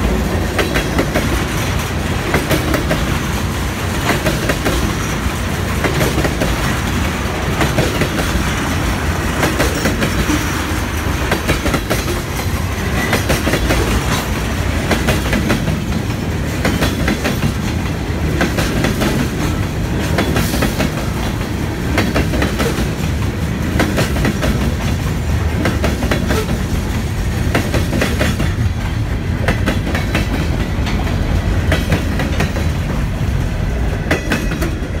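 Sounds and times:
steel wheels rumbling on rail: 0.0s - 35.0s
wheels clacking over rail joints: 0.0s - 35.0s.

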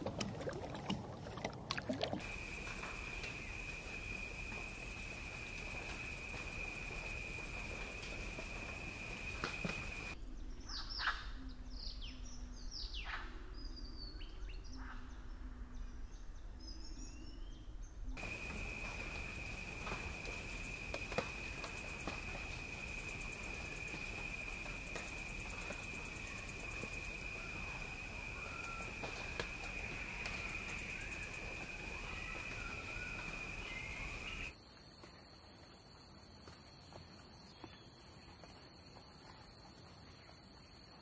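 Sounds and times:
whistled birdsong: 2.1s - 34.6s
high insect drone: 2.2s - 10.2s, 18.2s - 34.6s
bird chirps: 18.2s - 34.5s
faint bird calls: 18.2s - 34.5s.

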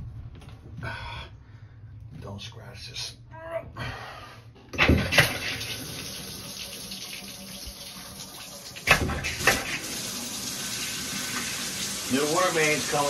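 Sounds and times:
water splashing into bathtub: 4.8s - 13.0s.

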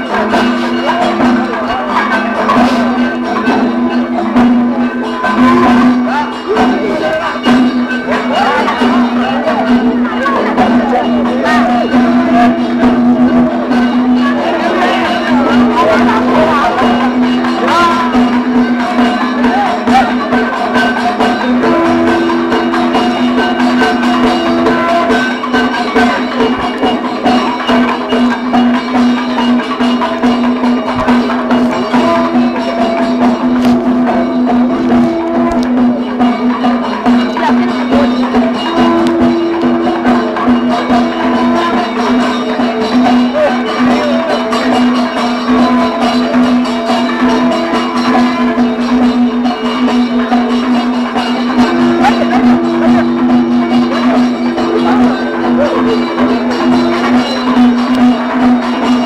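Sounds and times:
drums and struck percussion: 0.0s - 59.0s
steady drone with held notes: 20.8s - 27.7s, 31.4s - 44.5s, 50.1s - 59.0s.

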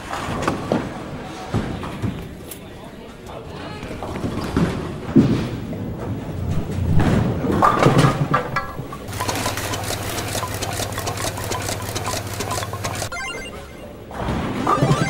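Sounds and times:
bowling ball crashing into pins: 4.2s - 9.6s, 14.0s - 15.0s
pinsetter machinery rattling: 7.6s - 13.2s.

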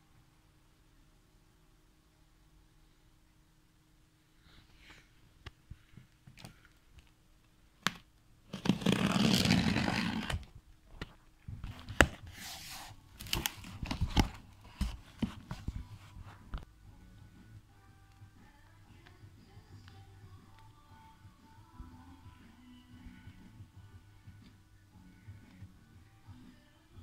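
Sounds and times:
cardboard tearing: 8.5s - 10.5s.

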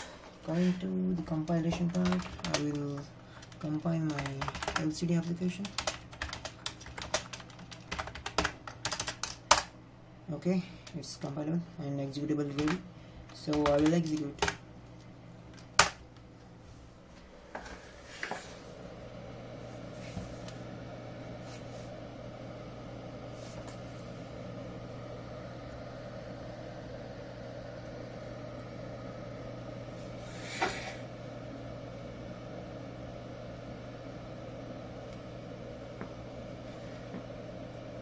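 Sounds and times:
electrical hum with faint whir: 0.0s - 38.0s.

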